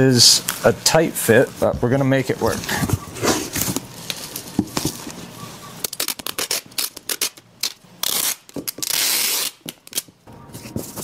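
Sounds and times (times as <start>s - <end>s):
packaging tearing: 5.8s - 10.1s.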